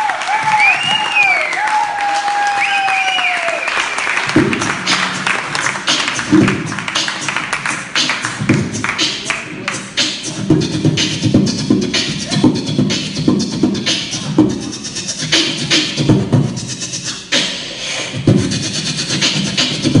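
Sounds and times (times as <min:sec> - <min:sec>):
beatboxing into a microphone: 0:04.2 - 0:20.0.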